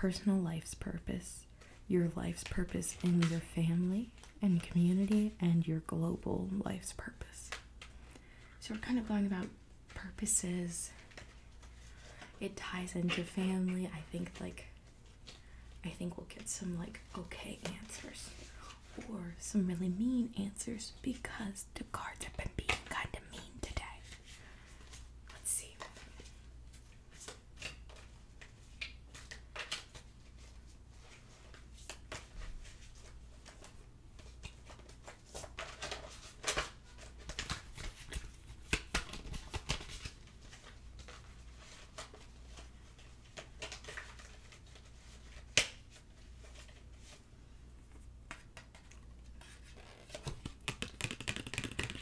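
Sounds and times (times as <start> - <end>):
cards shuffling and rustling: 1.6 - 5.4, 10.9 - 15.7, 22.5 - 47.2, 48.0 - 52.0.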